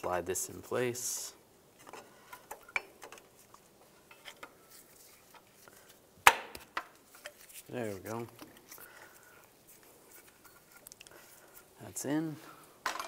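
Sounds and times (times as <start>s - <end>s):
metallic clicks and scrapes: 1.8s - 5.7s.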